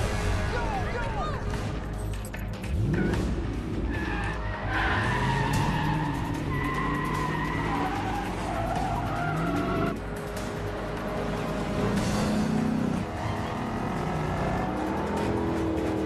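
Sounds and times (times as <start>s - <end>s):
car engines revving: 1.4s - 16.0s
tyres squealing and skidding: 3.8s - 10.0s, 12.3s - 16.0s.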